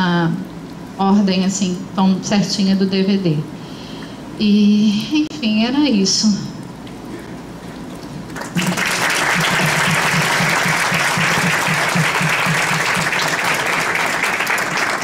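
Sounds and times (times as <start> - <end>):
audience applauding: 8.3 - 15.0.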